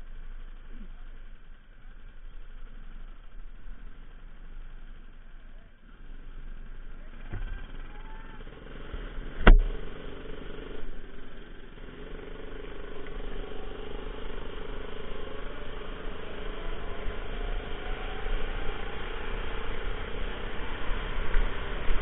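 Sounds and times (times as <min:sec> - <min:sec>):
go-kart engine running: 0:00.0 - 0:22.0
sharp knock: 0:09.4 - 0:09.8.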